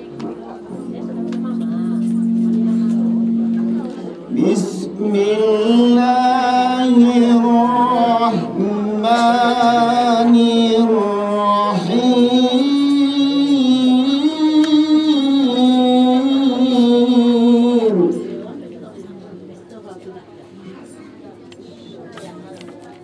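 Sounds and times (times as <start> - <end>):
man chanting into microphone: 4.3 - 18.4.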